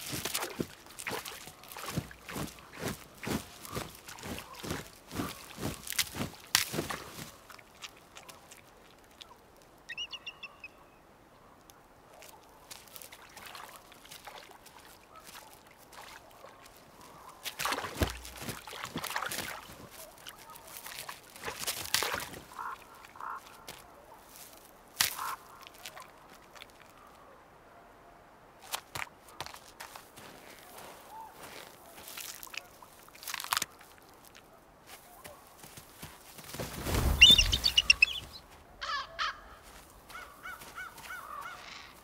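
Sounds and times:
bird chirping: 9.9 - 11.0, 37.1 - 39.6
bird honking calls: 9.9 - 11.0, 37.2 - 42.0.

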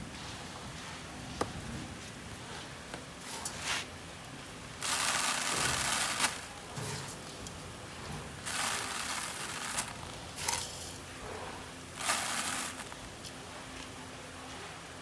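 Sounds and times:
rice grains pattering into bucket: 4.8 - 7.4, 8.4 - 11.0, 11.9 - 13.3.

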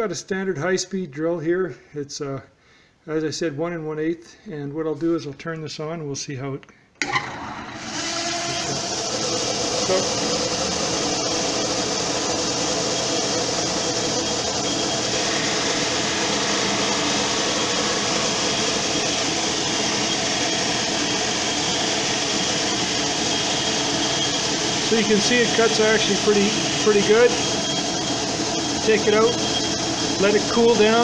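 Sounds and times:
metal lathe whirring: 7.0 - 31.0.

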